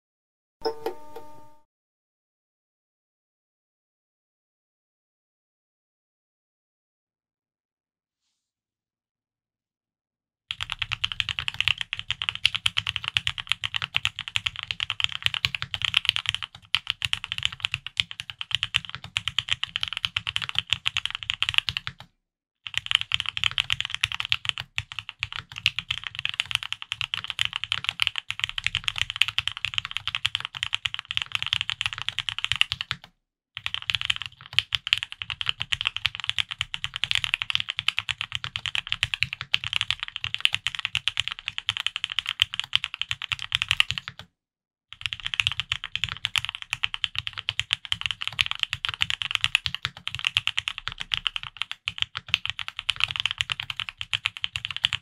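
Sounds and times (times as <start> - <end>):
mechanical keyboard typing: 10.5 - 22.1, 22.7 - 44.3, 45.0 - 55.0.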